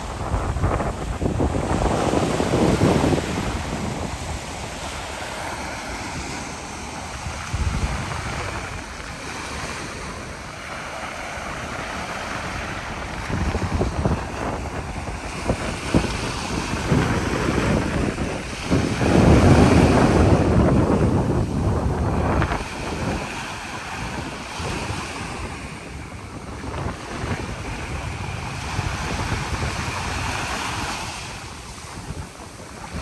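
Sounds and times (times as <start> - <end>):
waves breaking on a beach: 0.0 - 33.0
wind rumbling on microphone: 0.0 - 33.0.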